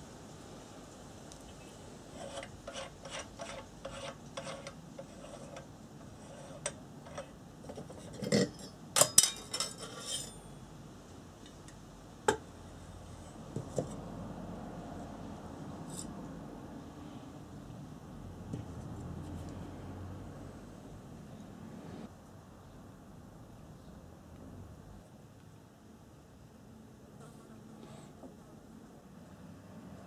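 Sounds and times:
metal clicks and scrapes: 0:02.1 - 0:10.4.

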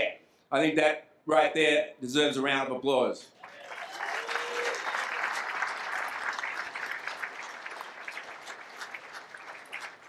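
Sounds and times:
audience applauding: 0:03.4 - 0:10.0.

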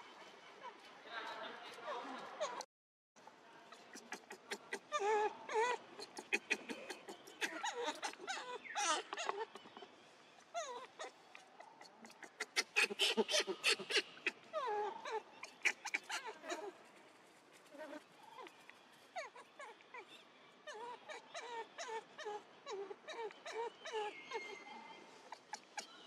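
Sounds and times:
monkeys squealing and whimpering: 0:03.7 - 0:09.6, 0:10.6 - 0:16.7, 0:19.2 - 0:26.0.

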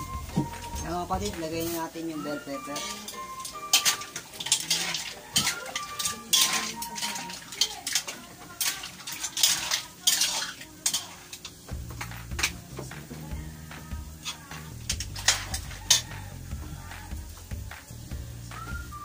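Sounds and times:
light sizzle: 0:00.0 - 0:19.0
metal spatula scraping a wok: 0:00.4 - 0:12.6, 0:14.2 - 0:16.9.

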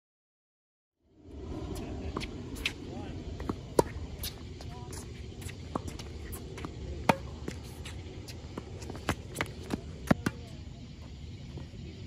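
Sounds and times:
racket striking tennis ball: 0:03.4 - 0:10.4
ball bouncing on hard court: 0:03.4 - 0:10.5.

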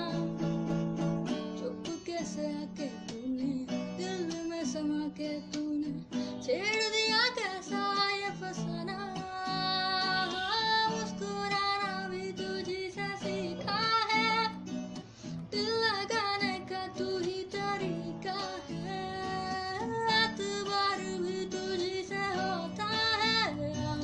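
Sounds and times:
person singing: 0:00.0 - 0:00.4, 0:01.4 - 0:14.6, 0:15.4 - 0:24.0
strummed acoustic guitar: 0:00.0 - 0:24.0.

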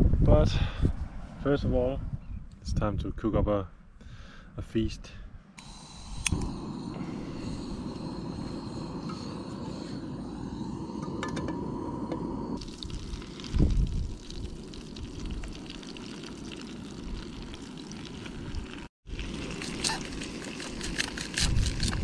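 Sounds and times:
gas stove rushing: 0:05.6 - 0:10.0.

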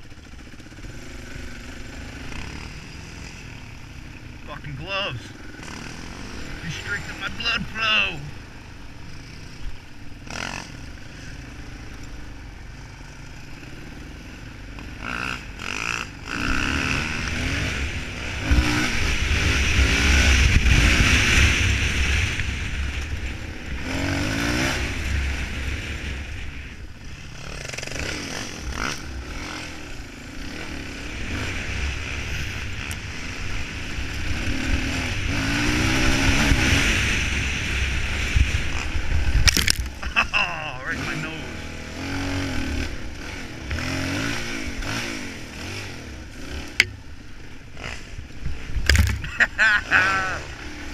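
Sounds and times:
dirt bike engine revving: 0:00.0 - 0:50.9.

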